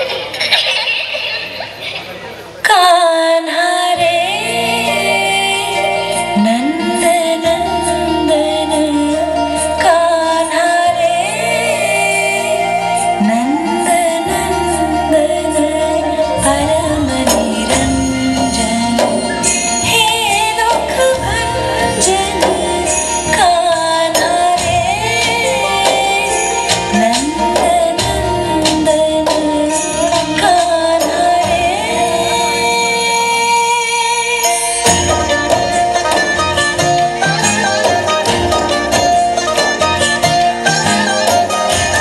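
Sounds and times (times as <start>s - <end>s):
instrumental backing: 0.0s - 42.0s.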